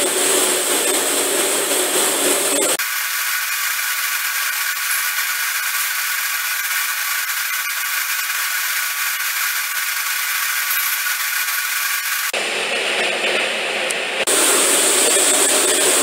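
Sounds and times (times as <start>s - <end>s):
arc welding hiss and crackle: 0.0s - 12.4s.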